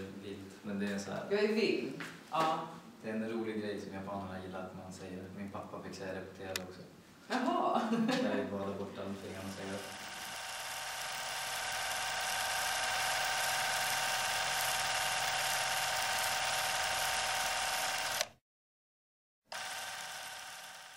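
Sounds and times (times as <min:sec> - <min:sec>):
buzzing drone: 0:09.6 - 0:18.2, 0:19.6 - 0:20.9.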